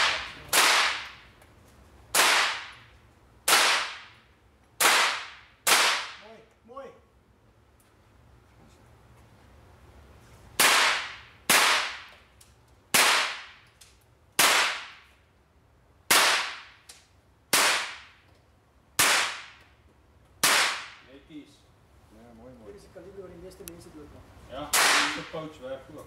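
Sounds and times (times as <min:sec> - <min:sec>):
rifle shots echoing indoors: 0:10.6 - 0:12.1, 0:24.7 - 0:25.3.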